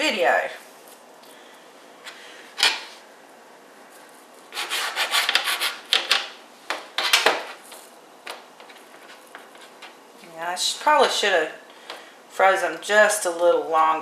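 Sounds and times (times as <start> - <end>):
knife sawing through dough: 4.6 - 5.8.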